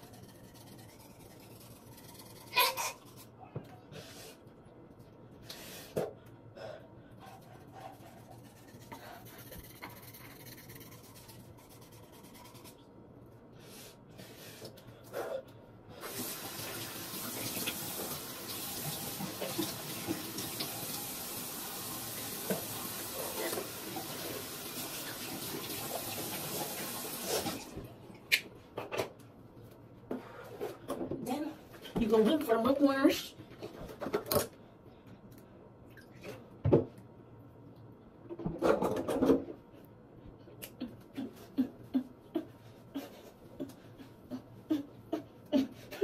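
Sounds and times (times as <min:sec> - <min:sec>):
toothbrush scrubbing: 0:00.0 - 0:03.3, 0:07.2 - 0:12.9, 0:22.3 - 0:24.4
sink tap running: 0:16.1 - 0:27.2.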